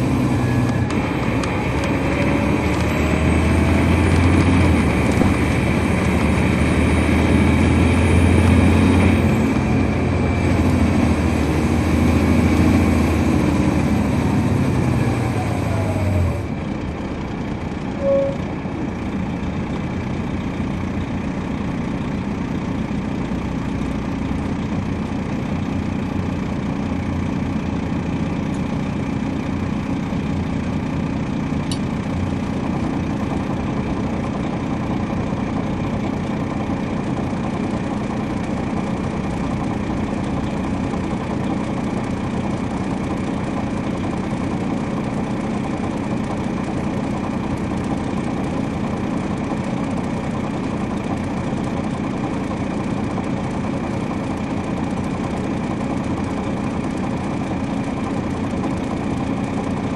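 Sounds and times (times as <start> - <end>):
diesel engine running and idling: 0.0 - 59.9
short beep: 18.0 - 18.5.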